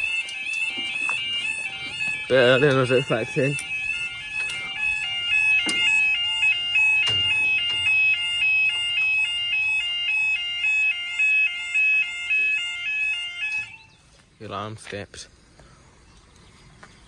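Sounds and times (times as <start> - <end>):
level crossing alarm two-tone warble: 0.0 - 14.0
sharp knocks: 5.6 - 6.1.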